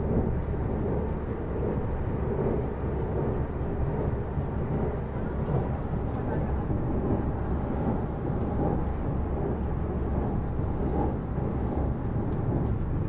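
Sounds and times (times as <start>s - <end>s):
train rumbling over bridge: 0.0s - 13.0s.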